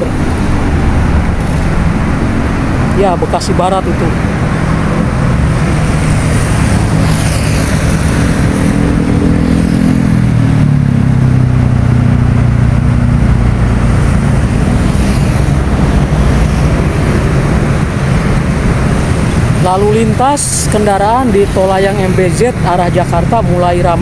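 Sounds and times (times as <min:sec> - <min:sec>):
highway traffic: 0:00.0 - 0:24.0
vehicle passing engine drone: 0:00.0 - 0:24.0.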